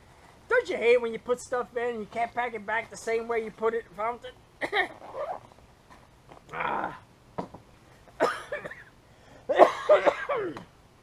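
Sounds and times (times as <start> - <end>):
man coughing: 4.6 - 5.0, 8.2 - 8.9, 9.5 - 10.7
man making wordless vocal sounds: 6.5 - 7.1.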